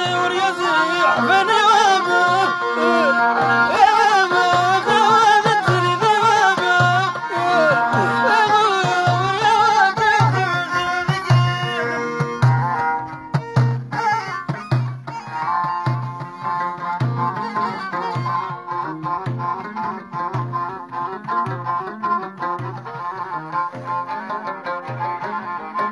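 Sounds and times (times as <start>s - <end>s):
man singing ornamented melody: 0.0s - 12.8s
lute: 0.0s - 25.9s
violin: 0.0s - 25.9s
frame drum beating: 3.4s - 18.4s.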